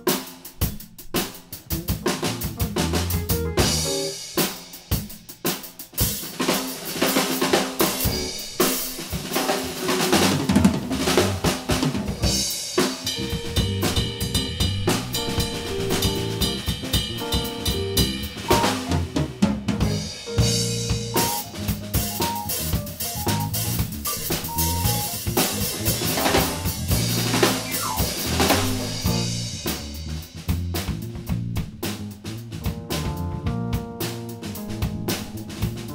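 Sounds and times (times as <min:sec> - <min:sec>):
drum kit groove: 0:00.0 - 0:35.9
live band playing: 0:01.5 - 0:05.0, 0:07.5 - 0:30.5, 0:32.6 - 0:35.9
keyboard and guitar chords: 0:02.6 - 0:04.2, 0:21.2 - 0:25.2, 0:27.6 - 0:29.2.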